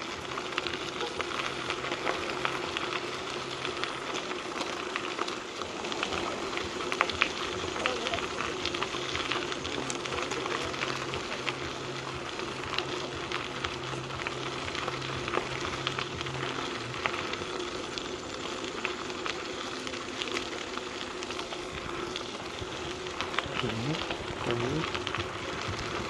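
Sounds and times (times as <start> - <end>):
bike tyres crunching on gravel: 0.0 - 26.0
low steady hum: 0.0 - 26.0.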